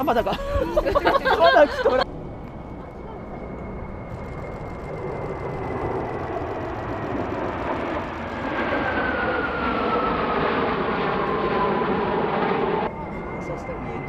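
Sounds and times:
high jet whine: 0.0 - 14.0
jet roar overhead: 0.0 - 14.0.

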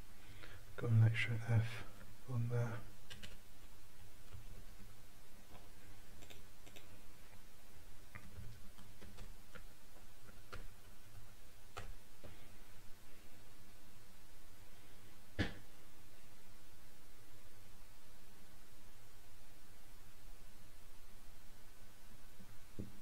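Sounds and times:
low background hum: 0.0 - 23.0
keyboard keystrokes clicking: 3.1 - 3.4.

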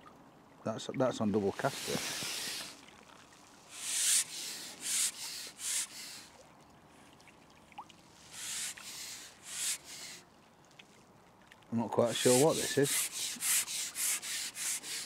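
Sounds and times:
fishing pole rasping swish: 1.6 - 2.8, 3.7 - 6.3, 8.3 - 10.2, 12.1 - 15.0.

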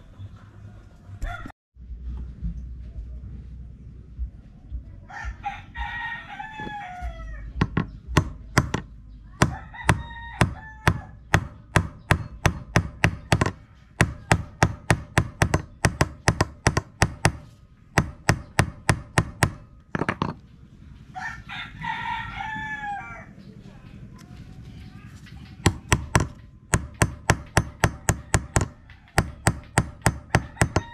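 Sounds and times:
rooster crowing: 0.6 - 1.5, 5.1 - 7.6, 9.5 - 11.2, 21.1 - 23.5, 30.3 - 30.9
hammer striking metal nail: 7.6 - 20.4, 25.5 - 30.9.

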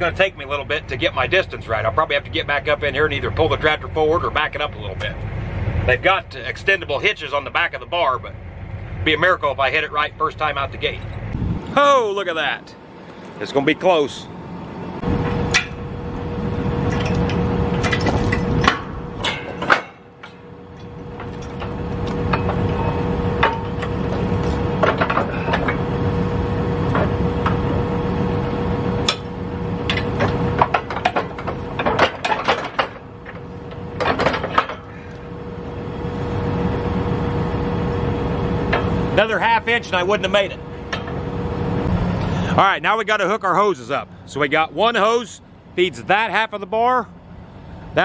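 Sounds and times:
tractor engine running: 0.0 - 48.0.

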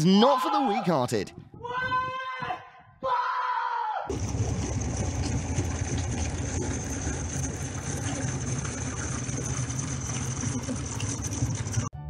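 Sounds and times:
boat engine low rumble: 4.1 - 11.9.

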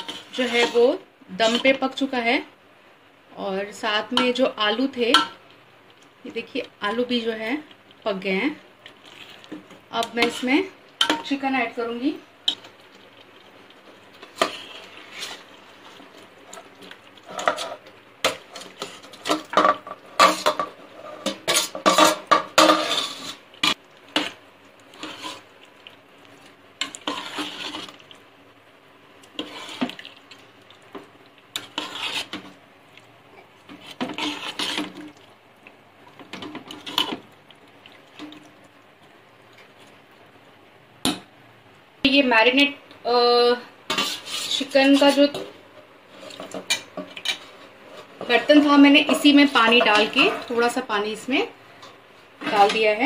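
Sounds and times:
metal spoon scraping a pot: 0.0 - 1.8, 10.0 - 11.4, 14.3 - 15.5, 17.2 - 25.4, 26.8 - 28.0, 29.4 - 30.0, 31.6 - 32.5, 33.7 - 35.0, 36.3 - 37.2, 43.9 - 45.4, 46.2 - 50.7.

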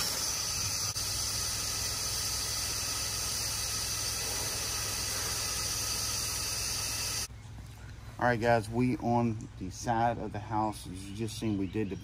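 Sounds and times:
pressure washer jet hissing: 0.0 - 7.3
low hum: 0.0 - 9.7.

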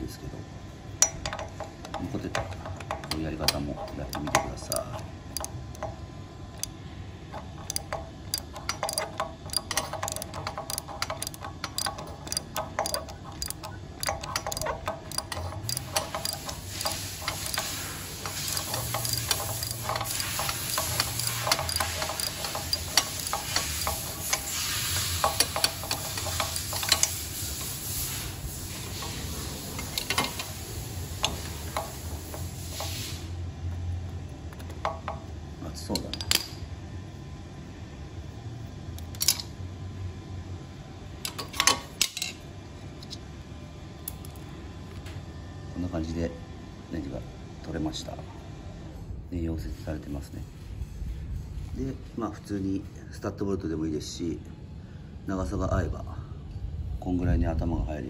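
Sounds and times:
ratchet wrench clicking: 1.0 - 33.3, 39.0 - 39.5.

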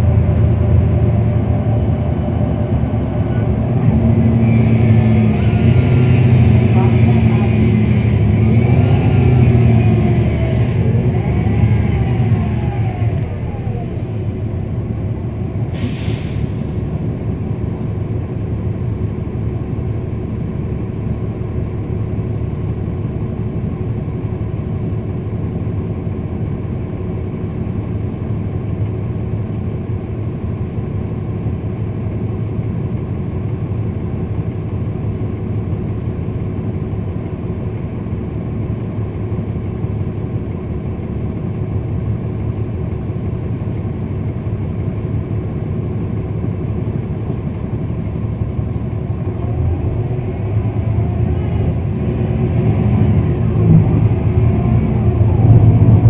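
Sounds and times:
bus diesel engine running: 0.0 - 56.0
air hiss burst: 15.7 - 16.7.

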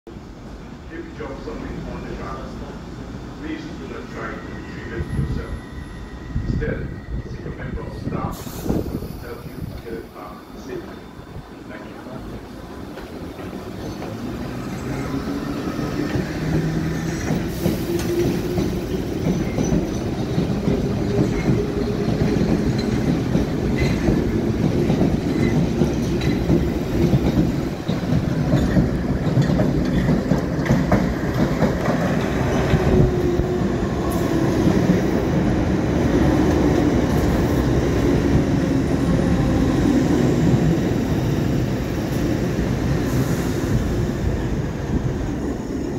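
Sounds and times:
train whine: 0.2 - 45.9
wheels clattering over rails: 16.1 - 32.8.

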